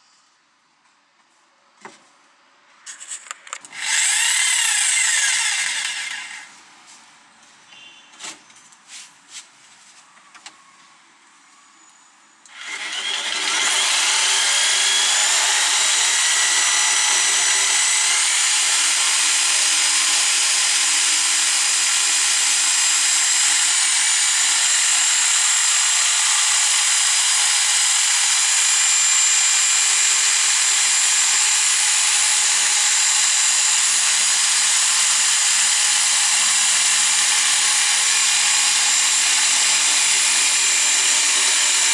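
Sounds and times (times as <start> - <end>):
jigsaw sawing chipboard: 3.7 - 6.5, 12.5 - 41.9.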